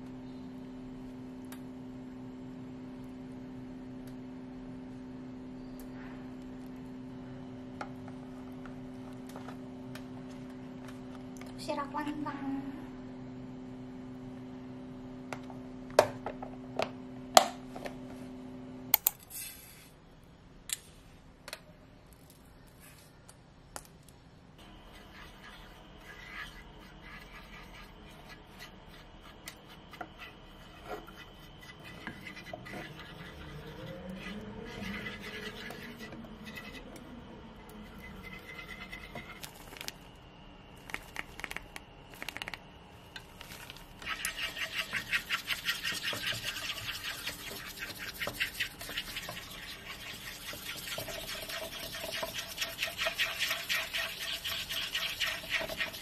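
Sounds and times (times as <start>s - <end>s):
chopstick scraping a pan: 24.9s - 36.8s, 37.8s - 39.5s, 44.0s - 56.0s.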